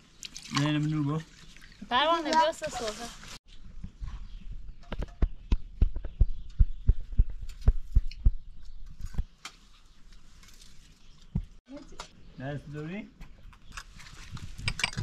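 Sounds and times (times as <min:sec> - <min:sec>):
spoons and plates clattering: 0:14.7 - 0:15.0.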